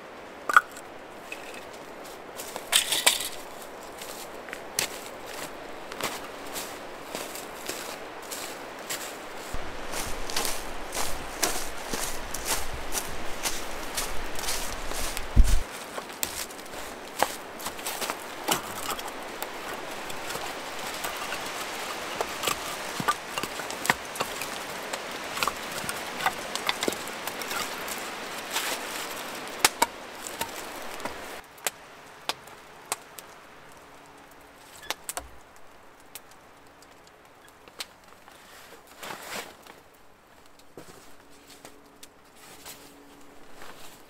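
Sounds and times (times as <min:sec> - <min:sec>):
campfire crackling and popping: 0:00.4 - 0:39.0
firewood knocking: 0:16.2 - 0:31.3.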